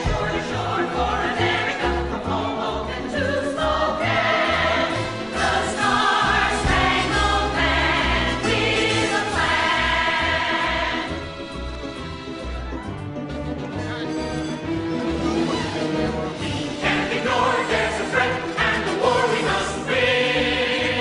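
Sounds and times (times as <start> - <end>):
band accompaniment: 0.0 - 2.7, 3.7 - 21.0
female chorus singing show tune: 0.0 - 11.2, 16.8 - 21.0.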